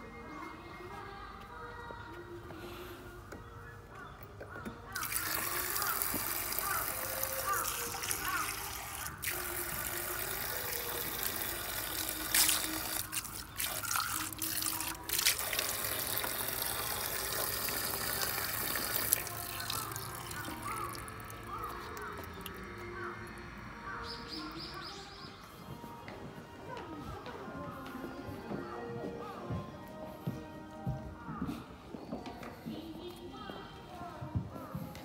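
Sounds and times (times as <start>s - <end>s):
sharp splashes: 5.0s - 22.6s
water trickling onto stone: 5.0s - 22.7s.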